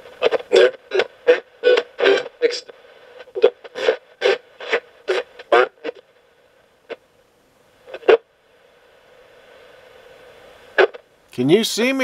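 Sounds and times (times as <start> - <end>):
radio blips: 0.0 - 6.1, 7.9 - 8.2, 10.8 - 11.1
radio fragments jumping stations: 0.0 - 7.1, 7.8 - 12.0
faint radio static: 0.0 - 12.0.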